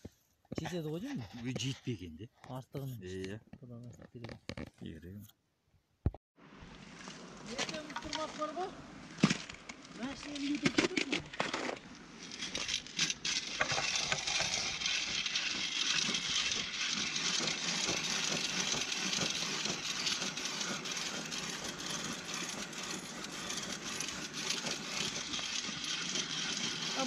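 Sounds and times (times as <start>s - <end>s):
ice auger clicks: 10.0s - 27.0s
ice auger grinding ice: 10.0s - 27.0s.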